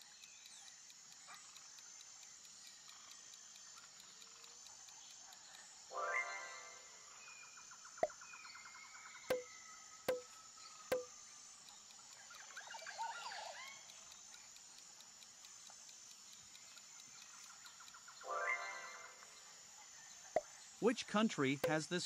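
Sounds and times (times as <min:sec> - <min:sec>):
sharp clicks: 0:00.0 - 0:05.9, 0:09.3 - 0:13.0, 0:13.6 - 0:19.4, 0:20.4 - 0:22.0
bird-like chirps: 0:00.0 - 0:22.0
insect-like hiss: 0:00.0 - 0:22.0.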